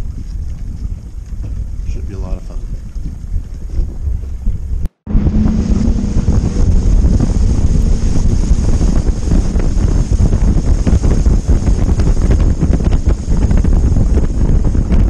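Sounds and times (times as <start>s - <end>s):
wind buffeting microphone: 0.0s - 15.0s
boat engine: 3.7s - 15.0s
rushing spray: 5.1s - 15.0s.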